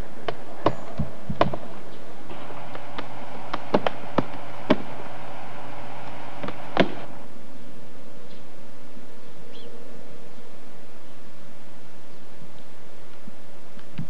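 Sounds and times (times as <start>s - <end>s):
hammer blows: 0.0s - 7.3s
faint hum: 0.0s - 14.0s
tape hiss: 0.0s - 14.0s.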